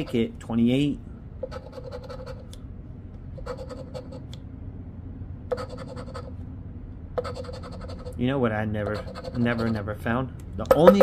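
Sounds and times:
coin scratching lottery ticket: 1.4s - 2.5s, 3.4s - 4.3s, 5.5s - 6.4s, 7.2s - 8.2s, 8.8s - 9.9s, 10.7s - 11.0s.

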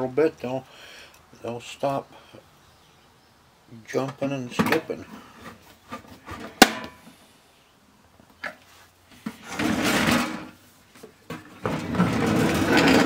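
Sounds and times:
device scraping on tabletop: 9.4s - 10.6s, 11.6s - 13.0s.

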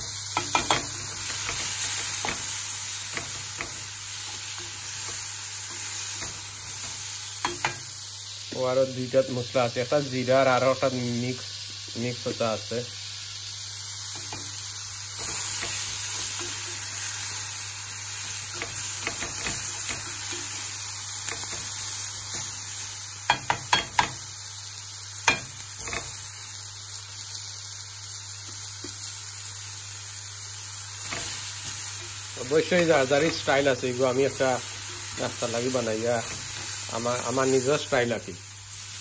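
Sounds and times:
vegetables sizzling in oil: 0.0s - 39.0s
spatula knocking and scraping pan: 0.4s - 7.9s, 14.2s - 14.6s, 15.2s - 16.9s, 18.5s - 20.7s, 23.3s - 24.2s.

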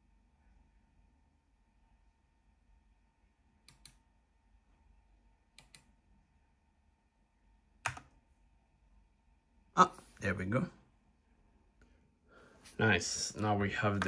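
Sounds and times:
mechanical keyboard keystrokes: 7.8s - 8.1s.

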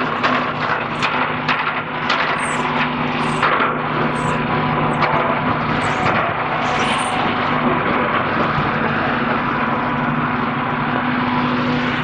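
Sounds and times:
knocks and clatter: 0.0s - 4.2s, 5.0s - 6.4s
steady engine hum: 0.0s - 12.0s
short high squeaks: 2.4s - 3.4s, 4.1s - 4.4s, 5.8s - 7.2s.

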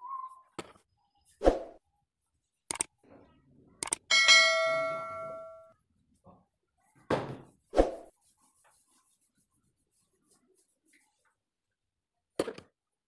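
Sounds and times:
bright metallic ding: 4.1s - 5.7s.

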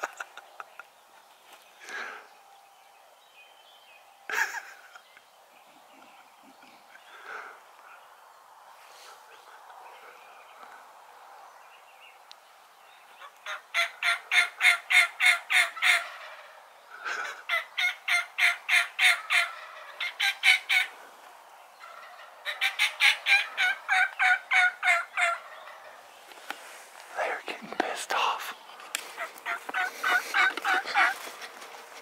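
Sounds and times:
turkeys gobbling: 13.2s - 21.0s, 21.8s - 27.4s, 28.7s - 31.7s.

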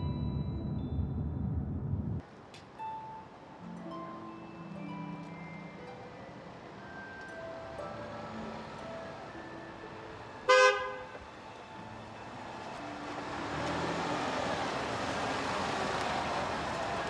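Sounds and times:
car engine and tyre noise: 0.0s - 2.7s, 6.6s - 17.0s
car horn toot: 10.5s - 11.2s.

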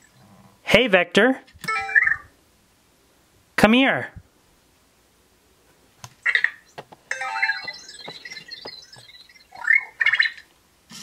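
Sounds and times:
robot electronic chirps and beeps: 1.7s - 2.3s, 6.3s - 10.4s.

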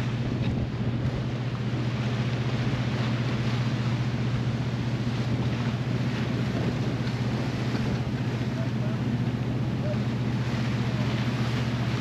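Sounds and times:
wind noise: 0.0s - 2.0s, 5.0s - 8.4s
ferry engines humming: 0.0s - 12.0s.

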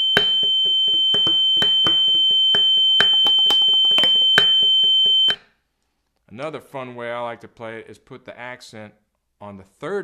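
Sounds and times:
snare drum played with sticks: 0.0s - 4.8s
high-pitched electronic tone: 0.0s - 5.4s.

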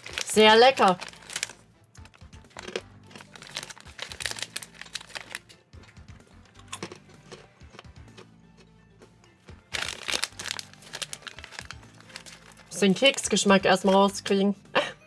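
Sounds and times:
plastic packaging crinkling: 0.0s - 5.5s, 9.7s - 14.1s.

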